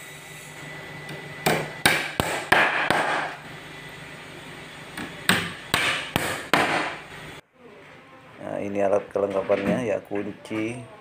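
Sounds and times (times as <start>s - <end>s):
hammer striking wooden crate: 1.4s - 3.3s, 5.3s - 7.0s.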